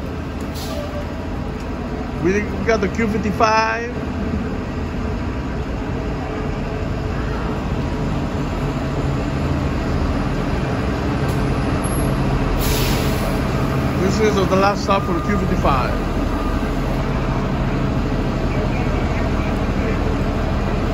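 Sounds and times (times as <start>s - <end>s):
bus engine low drone: 0.0s - 20.9s
air brake hiss: 0.5s - 1.0s, 12.6s - 13.4s.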